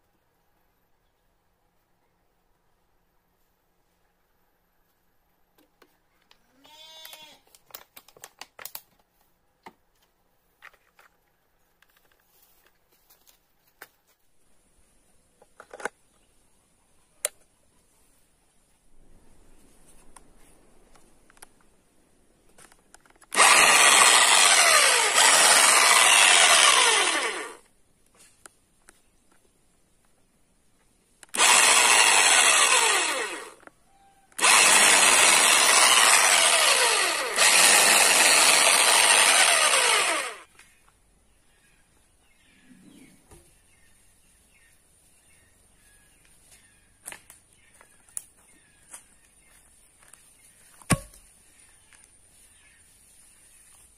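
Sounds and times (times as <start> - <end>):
electric chainsaw running: 23.3 - 27.6, 31.3 - 33.6, 34.4 - 40.5.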